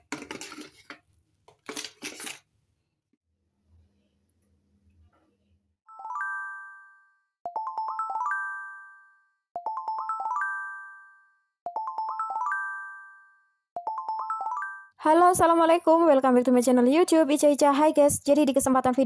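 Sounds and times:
bell-like chiming jingle: 5.9s - 15.0s.

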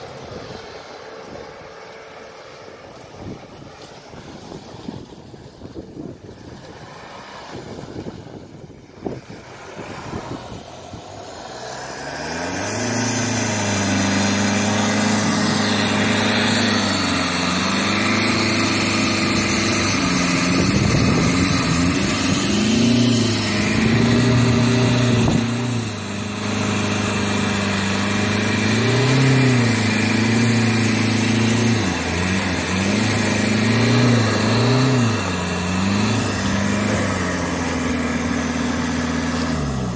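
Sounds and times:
wind: 0.0s - 39.9s
suv engine revving hard: 9.0s - 39.9s.

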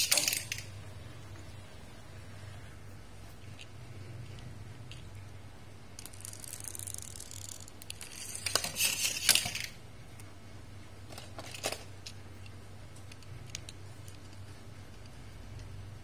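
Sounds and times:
toy cars rustling and clicking: 0.0s - 0.7s, 6.0s - 9.8s, 11.1s - 15.7s
steady low hum: 0.0s - 16.0s.

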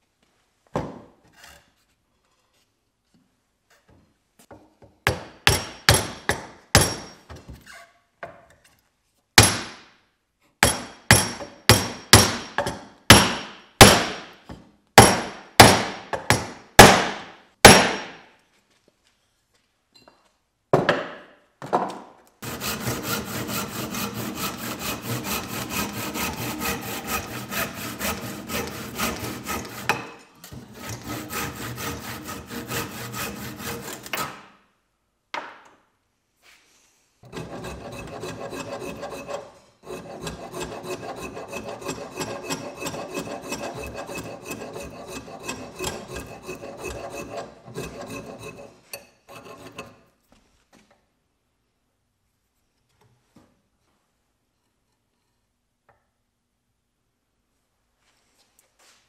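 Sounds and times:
hand saw cutting wood: 22.4s - 34.5s, 37.2s - 50.1s.

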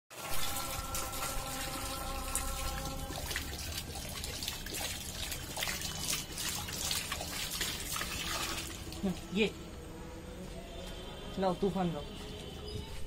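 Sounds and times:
water splashing: 0.1s - 9.4s
water trickling and pouring: 0.1s - 9.6s
dog lapping water: 0.5s - 9.2s.

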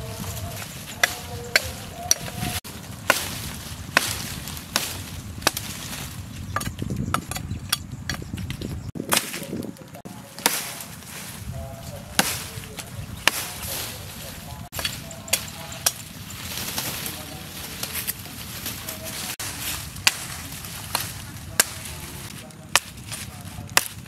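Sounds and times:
machete chopping wood: 1.0s - 6.0s, 9.0s - 9.6s, 10.4s - 10.8s, 19.4s - 21.9s, 22.7s - 24.0s.

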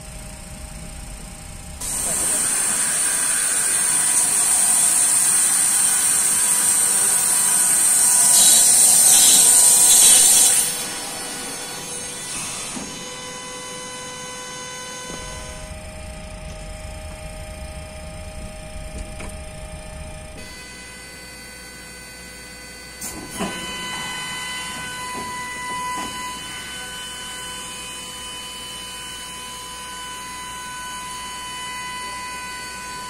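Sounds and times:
steady hum with whining tones: 0.0s - 33.0s
loud hydraulic hiss: 1.8s - 13.3s
deeper hum: 14.8s - 21.0s.

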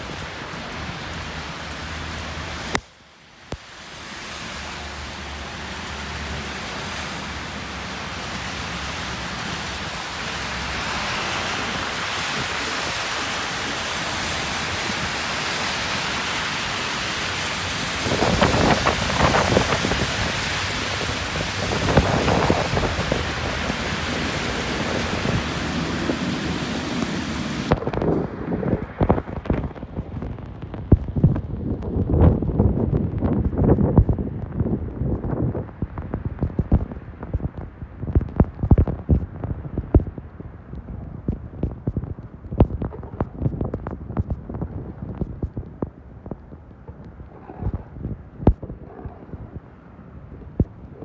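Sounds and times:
rumbling swells: 18.0s - 51.0s.

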